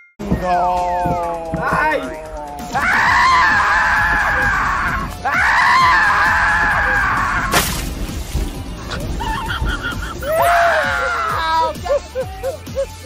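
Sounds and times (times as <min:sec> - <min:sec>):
riders screaming: 0:00.6 - 0:07.5, 0:08.8 - 0:12.3
boat splashing into water: 0:07.5 - 0:10.3.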